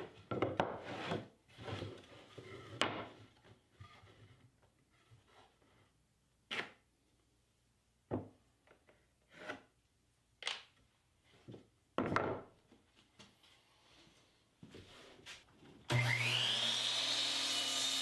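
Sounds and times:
boards scraping on workbench: 0:00.6 - 0:03.2.

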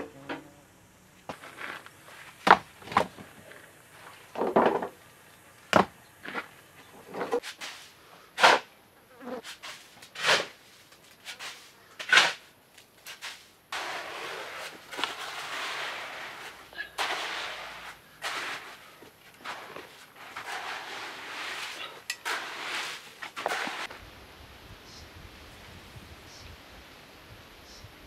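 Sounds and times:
shovel scraping loose earth: 0:01.3 - 0:04.5, 0:06.2 - 0:08.7, 0:09.4 - 0:24.0.

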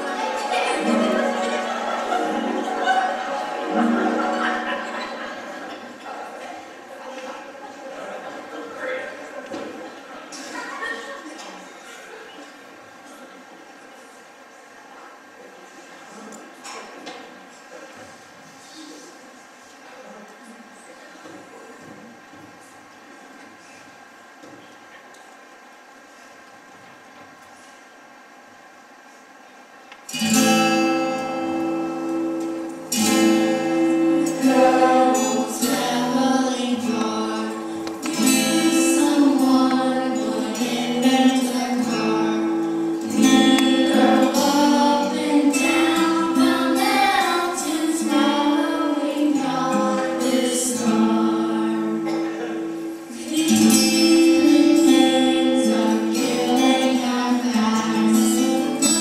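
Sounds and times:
song with instrumental accompaniment: 0:00.0 - 0:05.6, 0:30.1 - 0:52.1, 0:52.8 - 0:59.0.

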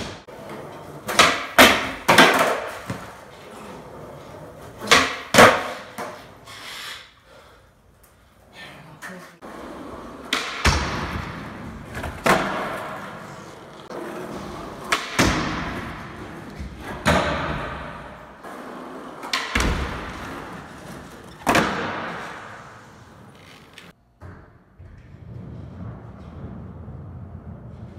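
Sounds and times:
skateboard wheels rolling: 0:00.0 - 0:06.7, 0:09.4 - 0:24.0, 0:24.8 - 0:27.9
skateboard clacking on concrete: 0:00.5 - 0:03.2.

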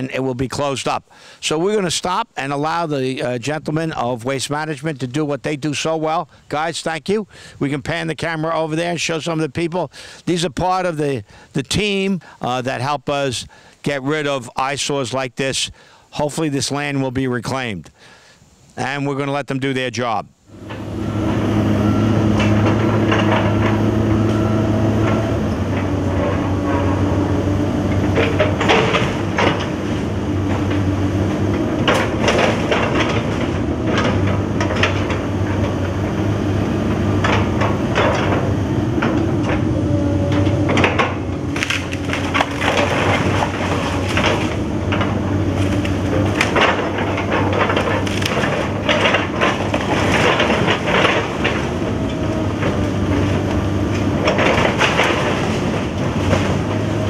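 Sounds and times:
excavator diesel engine: 0:20.5 - 0:57.0
wood cracking and splintering: 0:21.9 - 0:57.0
sharp snaps and crashes: 0:40.9 - 0:51.6.

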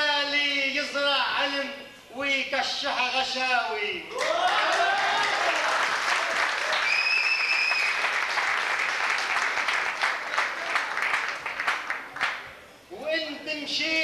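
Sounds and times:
audience applauding: 0:04.1 - 0:12.5
whistle: 0:06.8 - 0:08.0.

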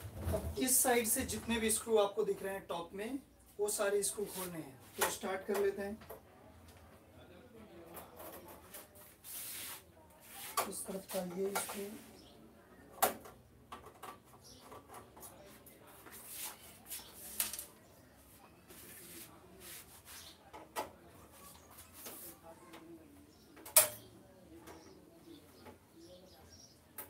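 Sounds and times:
metallic clicks on sheet metal: 0:23.6 - 0:24.1.

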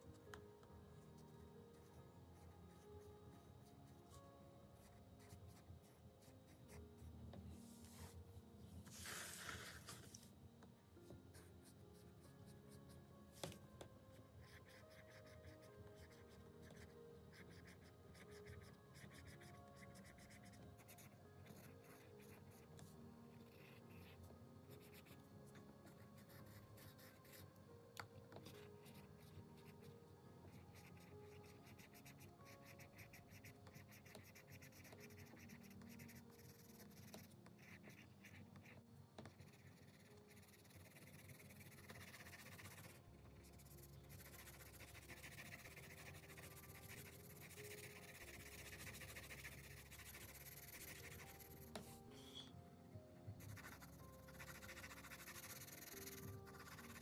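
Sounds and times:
faint background music: 0:00.0 - 0:57.0
pencil scratching on paper: 0:04.8 - 0:07.1, 0:14.4 - 0:22.7, 0:25.9 - 0:27.4, 0:30.5 - 0:52.0, 0:53.4 - 0:57.0.

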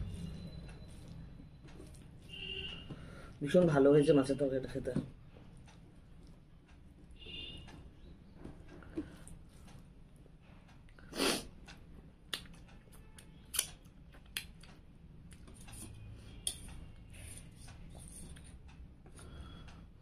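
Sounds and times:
lip smacks and finger-licking: 0:12.2 - 0:15.6.

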